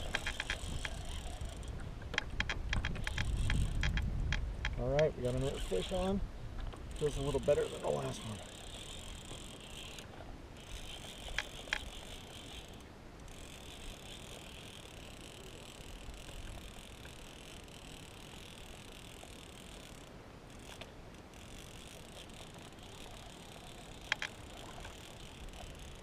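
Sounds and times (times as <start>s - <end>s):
fishing reel cranking: 0.0s - 4.4s, 5.2s - 6.2s, 6.8s - 26.0s
sharp clicks: 0.0s - 5.1s, 11.1s - 12.0s, 24.0s - 25.0s.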